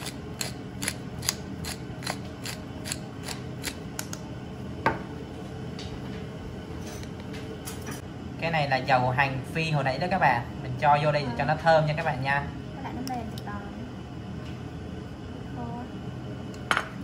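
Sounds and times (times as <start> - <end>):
pepper grinder ratcheting: 0.0 - 3.8.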